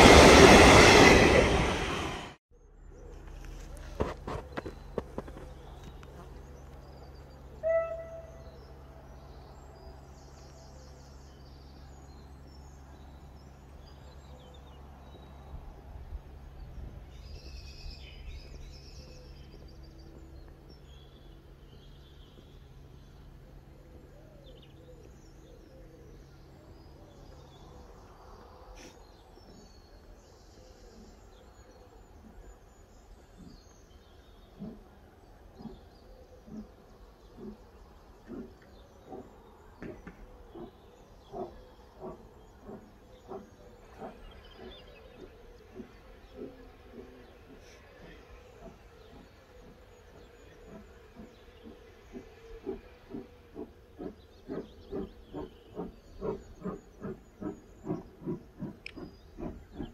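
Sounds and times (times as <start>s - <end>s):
steam locomotive chuffing: 0.0s - 2.4s, 30.9s - 59.9s
birds chirping: 2.9s - 59.9s.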